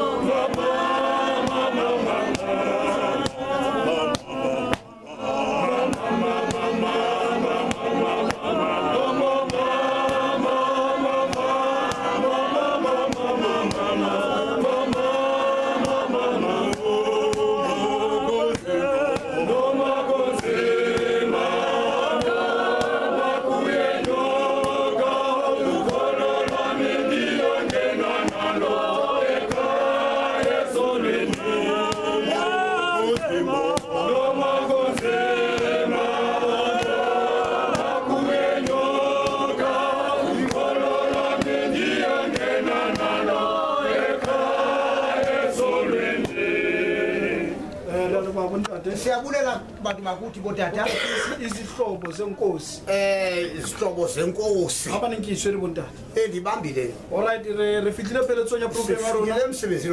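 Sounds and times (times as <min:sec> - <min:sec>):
men's choir singing: 0:00.0 - 0:47.8.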